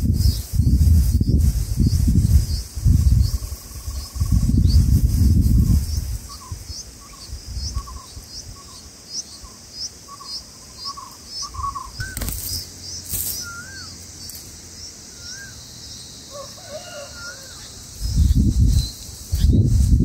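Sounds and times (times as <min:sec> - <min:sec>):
bird chirps: 0:05.5 - 0:19.6
wavering bird calls: 0:05.6 - 0:19.6
wing flutter: 0:11.6 - 0:14.6.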